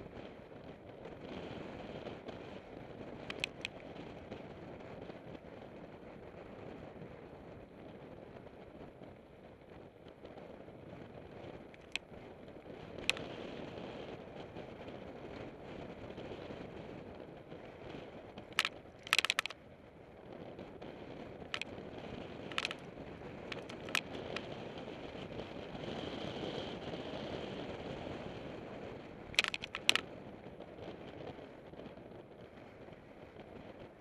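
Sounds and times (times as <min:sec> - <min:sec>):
bike tyres and wind rushing: 0:00.0 - 0:34.0
bike rattling over bumps: 0:11.8 - 0:12.0, 0:18.6 - 0:19.6, 0:29.4 - 0:30.0.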